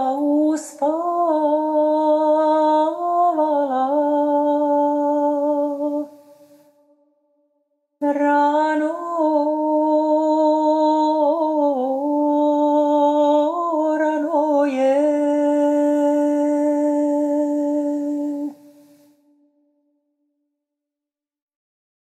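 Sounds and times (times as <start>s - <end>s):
woman singing unaccompanied: 0.0s - 6.3s, 8.0s - 18.7s.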